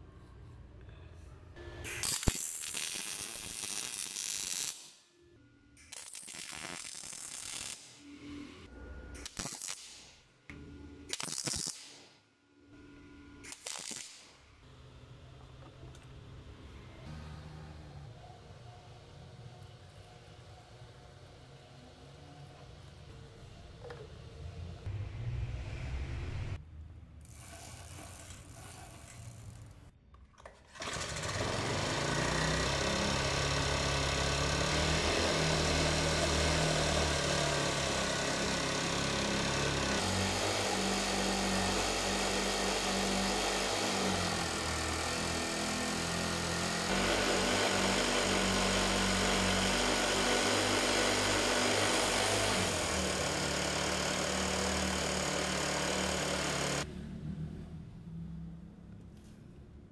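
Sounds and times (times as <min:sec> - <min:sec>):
small engine running: 0:30.8 - 0:56.9.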